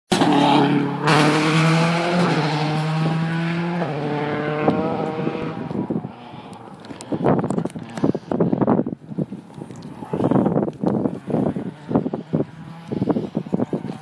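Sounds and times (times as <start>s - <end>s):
rally car engine at high revs: 0.1s - 7.2s, 10.9s - 14.0s.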